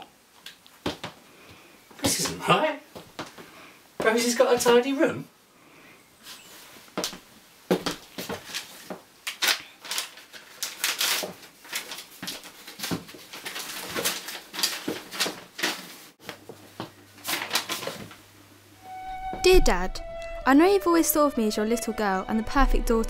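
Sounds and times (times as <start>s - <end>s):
paper rustling and crinkling: 8.0s - 16.5s, 17.2s - 18.2s.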